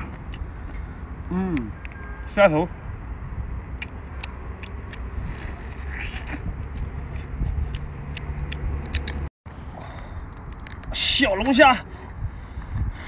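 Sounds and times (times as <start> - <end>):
mouth sounds: 1.2 - 1.8.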